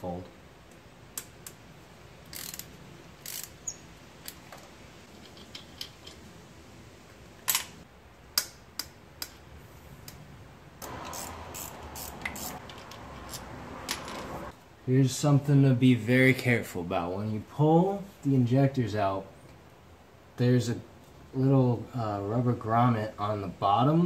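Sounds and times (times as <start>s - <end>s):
wrench clicking on bolts: 2.3s - 3.6s, 10.8s - 14.3s.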